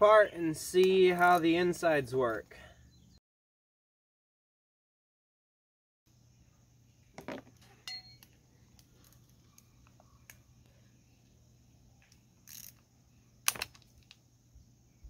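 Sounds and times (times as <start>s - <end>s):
metal tools clicking and clinking: 7.8s - 8.3s.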